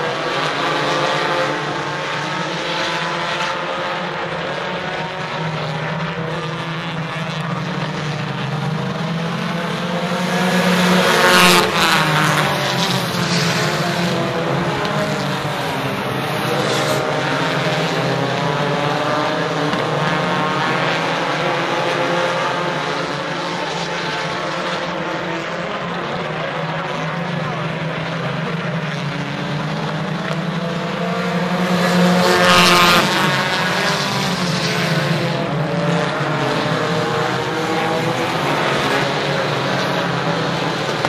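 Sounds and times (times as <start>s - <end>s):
race car engines droning: 0.0s - 41.0s
race car passing: 0.0s - 41.0s.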